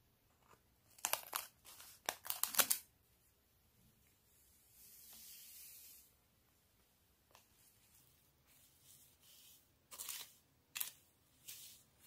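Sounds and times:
packet tearing open: 0.9s - 2.9s.

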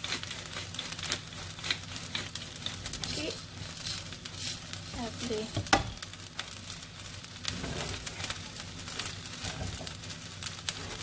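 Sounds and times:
chopsticks tossing noodles: 0.0s - 5.5s
noodles sizzling in a pan: 0.0s - 11.0s.

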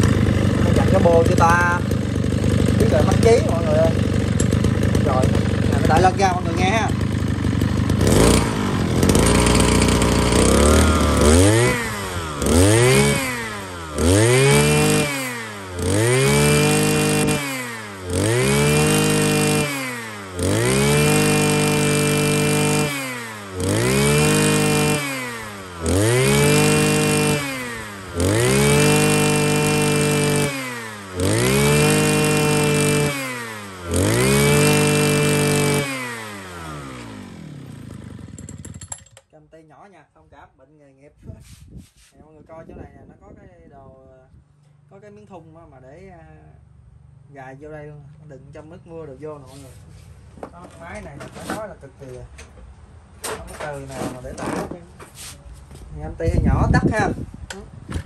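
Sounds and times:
brushcutter engine revving: 0.0s - 39.3s.

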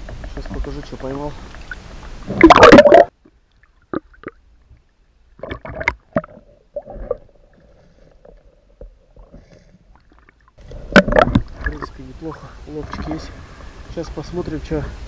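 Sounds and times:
faint underwater hum: 0.0s - 15.0s
loud water splash: 2.2s - 3.1s
underwater knocks and clicks: 5.4s - 7.2s, 10.2s - 11.9s.

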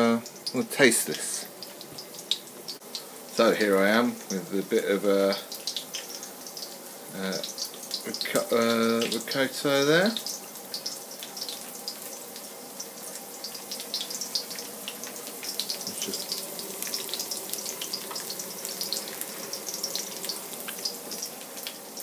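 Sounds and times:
garlic sizzling in a pan: 0.0s - 22.0s
small crackles and pops: 5.3s - 9.4s, 10.0s - 22.0s.

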